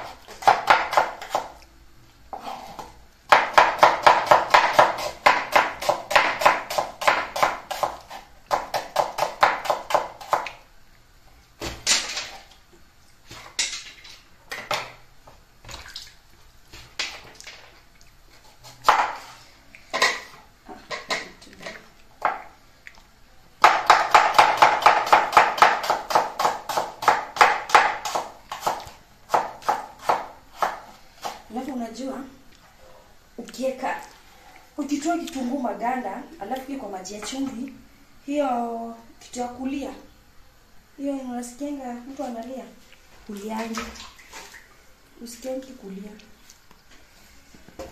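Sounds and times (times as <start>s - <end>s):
knife chopping on wooden board: 0.0s - 1.5s, 2.3s - 10.5s, 18.8s - 19.3s, 23.6s - 31.4s.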